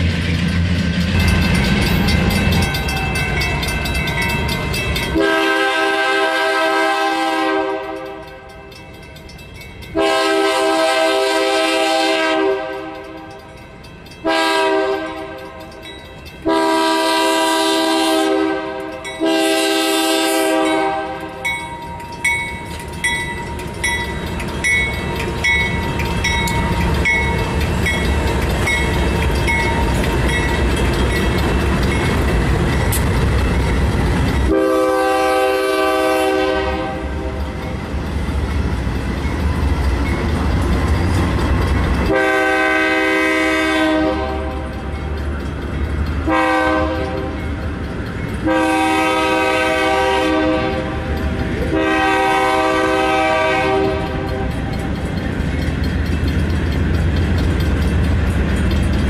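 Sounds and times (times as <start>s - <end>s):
locomotives rumbling past: 0.0s - 59.0s
bell dinging: 1.0s - 5.2s, 20.7s - 34.5s
locomotive horn blasts: 5.1s - 8.3s, 9.9s - 13.1s, 14.2s - 15.7s, 16.4s - 21.5s, 34.5s - 37.2s, 42.1s - 44.7s, 46.2s - 47.4s, 48.4s - 54.5s.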